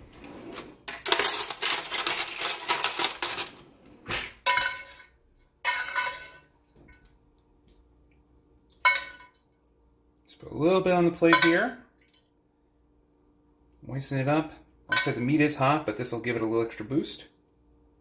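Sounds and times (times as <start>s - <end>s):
metal spoon scraping a pan: 4.4s - 6.5s.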